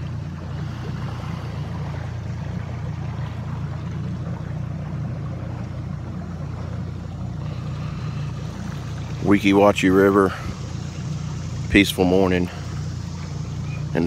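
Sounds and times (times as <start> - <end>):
hiss of water: 0.0 - 2.5, 7.4 - 14.0
outboard motor humming: 0.0 - 14.0.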